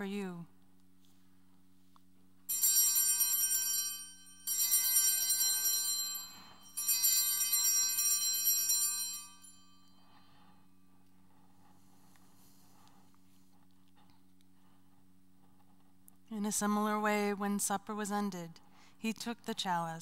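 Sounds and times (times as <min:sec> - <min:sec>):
altar bells jingling: 0:02.5 - 0:10.6.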